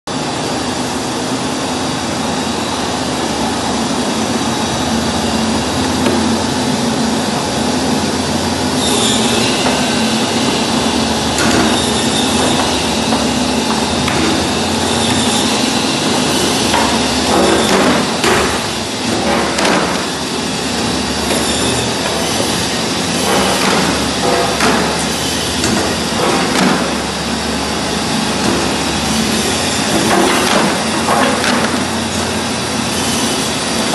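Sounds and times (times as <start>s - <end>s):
machine motor hum: 0.1s - 33.9s
sharp knocks and clatter: 16.0s - 20.1s.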